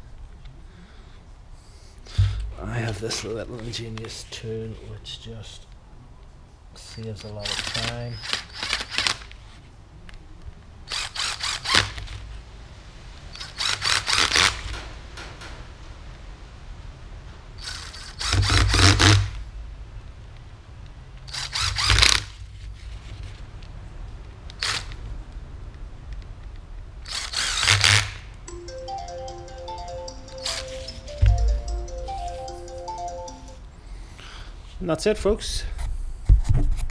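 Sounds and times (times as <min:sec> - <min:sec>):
cordless drill driving screws: 0:07.5 - 0:09.2, 0:17.6 - 0:19.2, 0:21.3 - 0:22.3, 0:24.6 - 0:24.8, 0:27.1 - 0:28.1.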